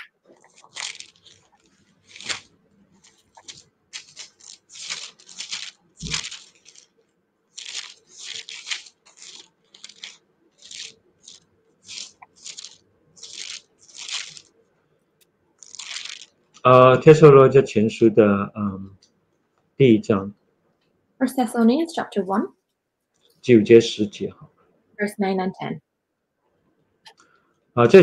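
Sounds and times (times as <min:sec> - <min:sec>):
book pages rustling: 0:00.0 - 0:14.6, 0:15.6 - 0:16.7.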